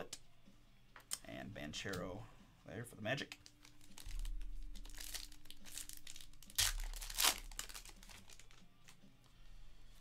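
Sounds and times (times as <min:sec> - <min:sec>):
foil wrapper crinkling: 0:03.4 - 0:09.0
foil ripping: 0:03.7 - 0:08.6.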